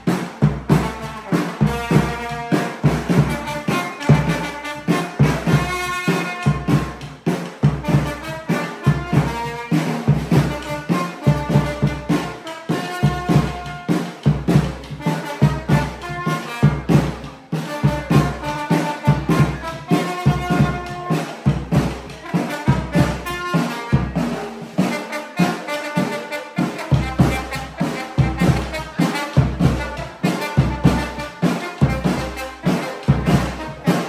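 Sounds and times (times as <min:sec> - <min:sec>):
trombone playing melody: 0:00.0 - 0:34.0
bass drum beat: 0:13.0 - 0:24.4.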